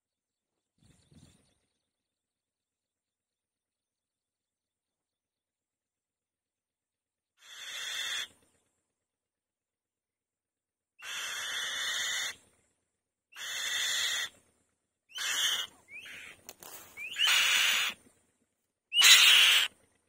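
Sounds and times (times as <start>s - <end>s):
bird harsh rasping calls: 7.4s - 8.4s, 11.0s - 12.4s, 13.3s - 14.4s, 15.1s - 18.0s, 18.9s - 19.7s.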